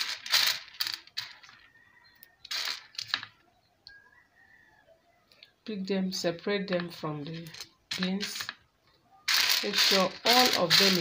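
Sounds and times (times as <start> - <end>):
dried beans rattling on metal tray: 0.0 - 1.7, 2.5 - 3.4, 7.2 - 8.6, 9.3 - 11.0
sliding scrape: 9.3 - 11.0.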